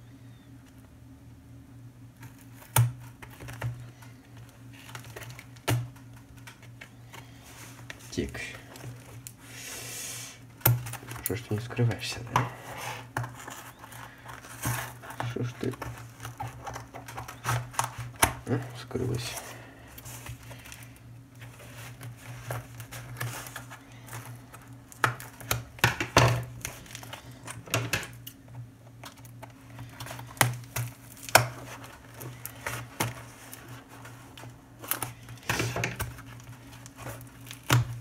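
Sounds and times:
tape crinkling: 2.1s - 9.5s, 10.4s - 38.0s.

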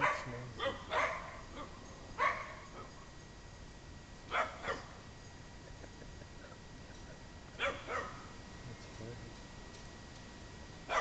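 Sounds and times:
small dog barking: 0.0s - 2.9s, 4.3s - 5.0s, 7.6s - 8.3s.

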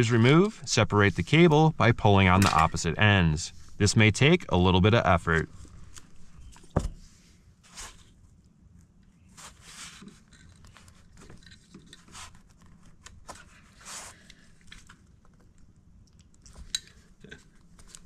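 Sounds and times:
cable connector rubbing and rustling: 9.4s - 13.7s.

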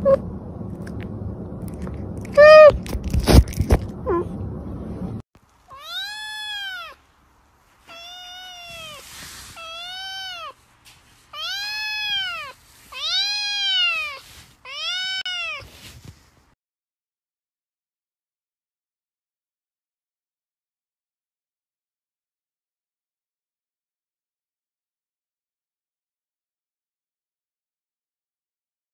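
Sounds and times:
kitten meowing: 2.3s - 2.8s, 5.7s - 7.0s, 7.9s - 10.6s, 11.4s - 15.7s.

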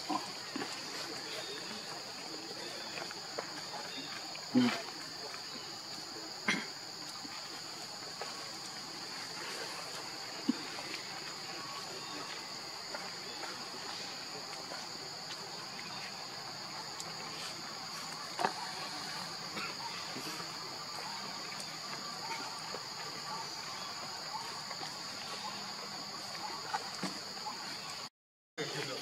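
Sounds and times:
insects droning: 0.0s - 29.0s.

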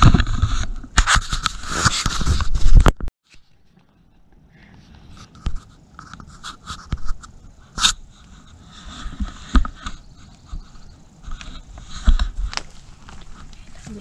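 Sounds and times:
footsteps on dry twigs and leaves: 5.1s - 14.0s.

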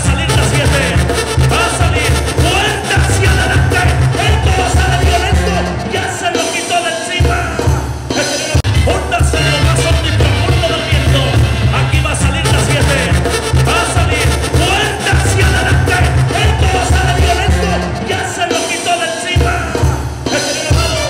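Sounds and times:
steady bass beat: 0.0s - 5.8s, 8.6s - 18.1s
person singing: 0.0s - 21.0s.

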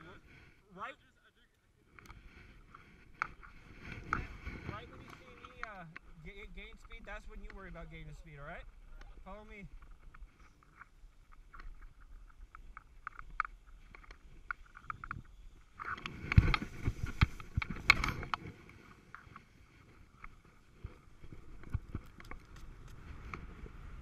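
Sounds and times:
crunching snow and knocks: 15.8s - 18.6s.

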